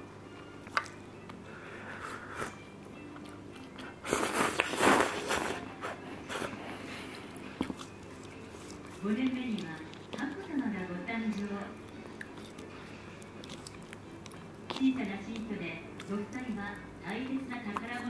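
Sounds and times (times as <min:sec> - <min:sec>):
person chewing: 0:00.3 - 0:16.5
noodle slurp: 0:04.0 - 0:06.5.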